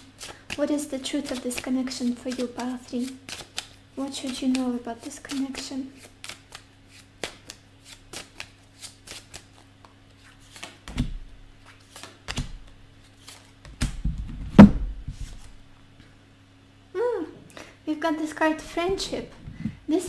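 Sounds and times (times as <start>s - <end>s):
faint steady hum: 0.0s - 20.0s
cards shuffling: 0.2s - 14.1s.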